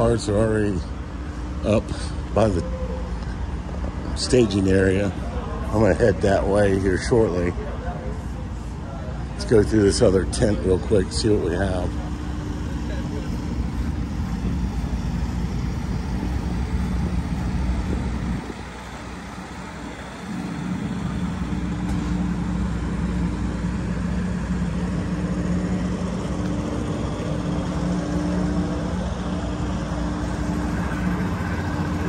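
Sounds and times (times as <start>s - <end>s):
motor hum: 0.0s - 32.0s
low rumble: 11.9s - 32.0s.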